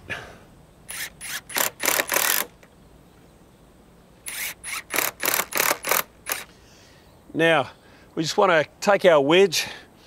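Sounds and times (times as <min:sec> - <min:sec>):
drill driving screws into wood: 0:00.9 - 0:02.6, 0:04.2 - 0:06.5.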